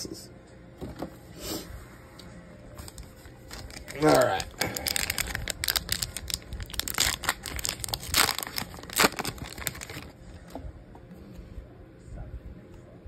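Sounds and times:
wrapper crinkling and tearing: 2.8s - 10.2s.

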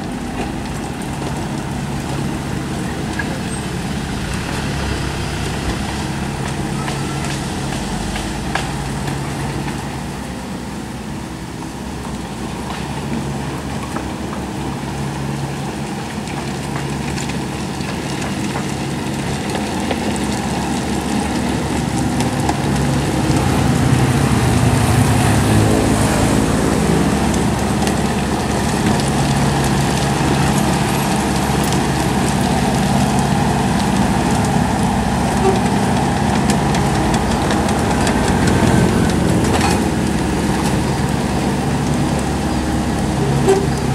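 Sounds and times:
excavator diesel engine running: 0.0s - 43.9s.

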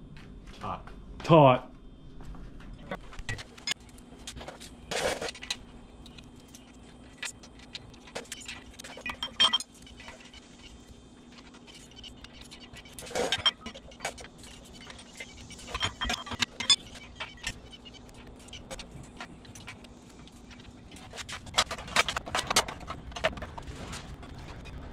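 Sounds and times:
faint steady hum: 0.0s - 24.9s.

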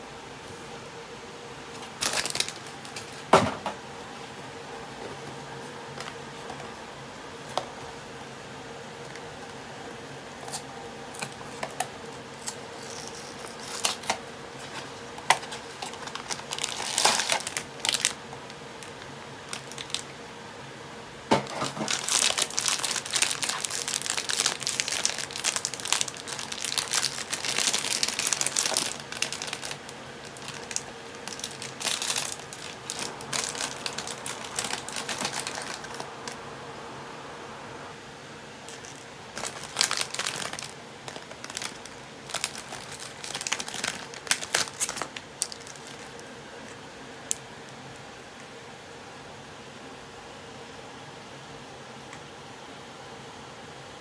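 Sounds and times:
foil bag crinkling and tearing: 1.9s - 3.2s, 12.4s - 18.2s, 18.8s - 20.1s, 21.4s - 36.4s, 38.7s - 46.3s.

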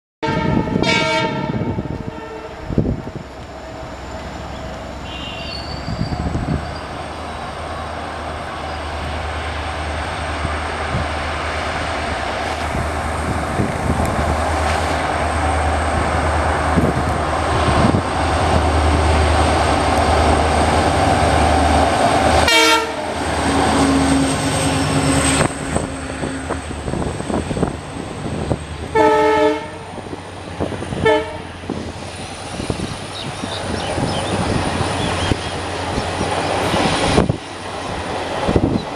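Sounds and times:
train horn blasts: 0.2s - 2.9s, 5.0s - 5.6s, 22.4s - 26.5s, 28.9s - 29.9s, 31.0s - 31.6s
diesel locomotive engine rumble: 0.2s - 38.9s.

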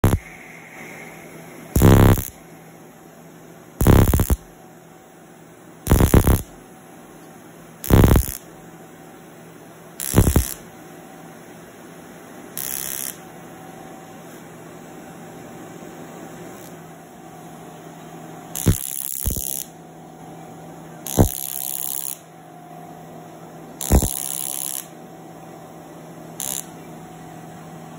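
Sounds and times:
laser firing in buzzing bursts: 0.0s - 0.3s, 1.7s - 2.4s, 3.8s - 4.5s, 5.9s - 6.6s, 7.8s - 8.5s, 10.0s - 10.6s, 12.6s - 13.2s, 18.6s - 19.7s, 21.0s - 22.2s, 23.8s - 24.9s, 26.4s - 26.8s
faint steady hum: 0.0s - 27.9s.

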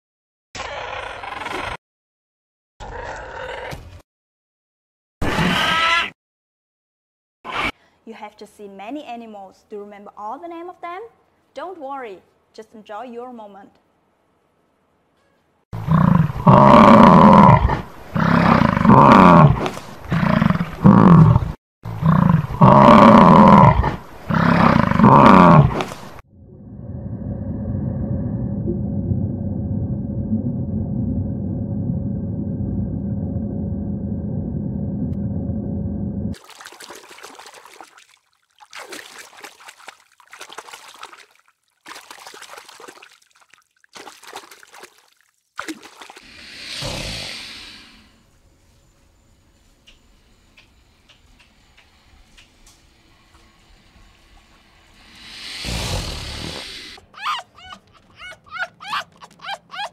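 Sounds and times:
big cat roaring: 15.8s - 25.9s, 55.0s - 57.0s
water trickling and splashing: 36.4s - 46.3s.

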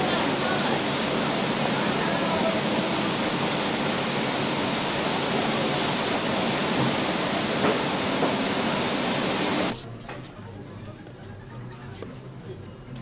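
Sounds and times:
falling water rushing: 0.0s - 9.8s.

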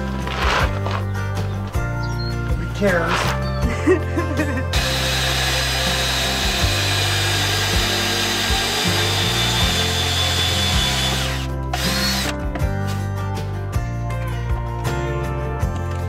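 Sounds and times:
background music with bass line: 0.0s - 16.0s
cordless drill cutting wood: 4.7s - 12.4s.

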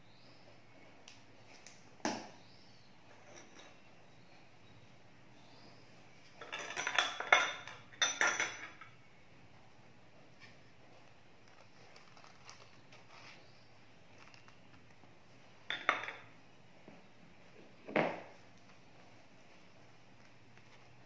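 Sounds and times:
utensils clattering on cutting board: 6.4s - 9.0s.

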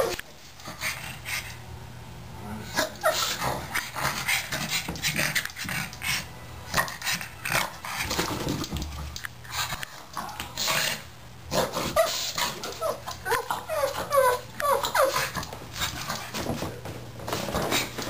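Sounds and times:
dog whining and yipping: 12.0s - 15.4s.

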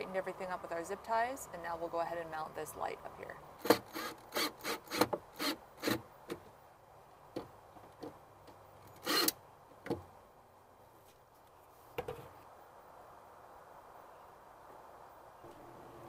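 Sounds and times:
cordless drill driving screw: 3.6s - 6.0s, 9.0s - 9.4s.

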